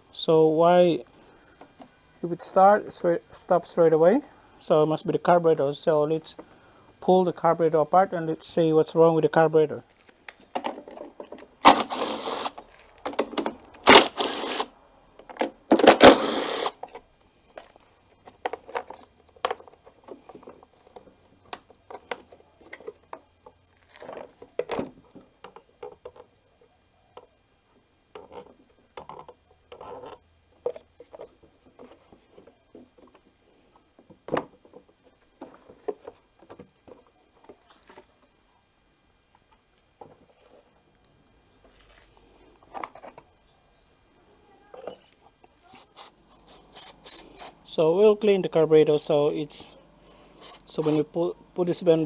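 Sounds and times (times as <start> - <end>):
plastic parts clicking and knocking: 9.9 - 14.6, 15.2 - 26.3
cordless drill running: 11.6 - 12.6, 13.8 - 14.7, 15.8 - 16.8.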